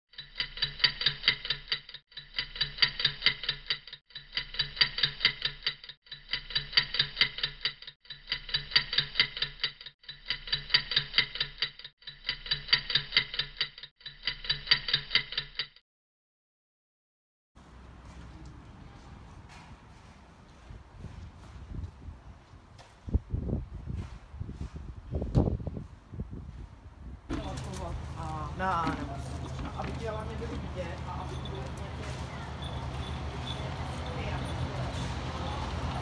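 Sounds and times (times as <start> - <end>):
clock-like ticking: 0.1 - 15.8.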